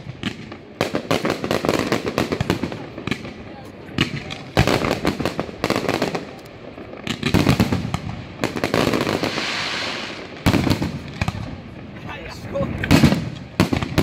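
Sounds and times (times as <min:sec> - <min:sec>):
fireworks bursting and crackling: 0:00.0 - 0:14.0
firework hiss: 0:07.1 - 0:11.7.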